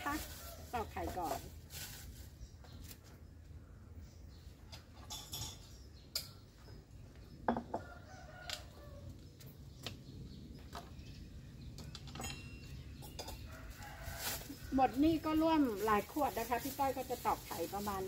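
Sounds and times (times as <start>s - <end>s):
plastic bag rustling: 0.0s - 3.0s, 13.6s - 18.0s.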